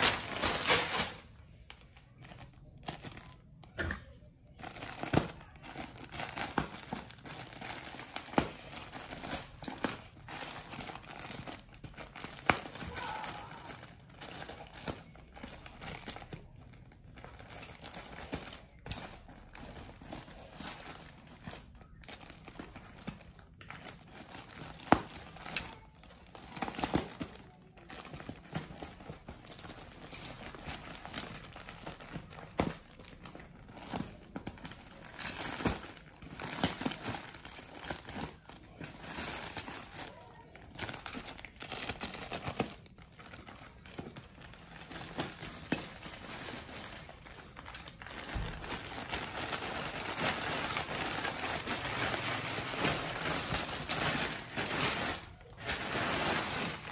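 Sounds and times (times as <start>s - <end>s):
plastic packaging crinkling and tearing: 0.0s - 56.9s.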